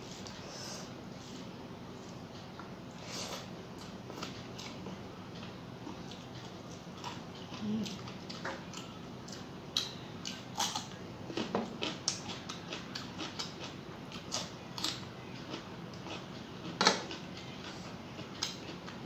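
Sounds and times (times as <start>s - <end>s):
person chewing and smacking: 3.8s - 19.0s.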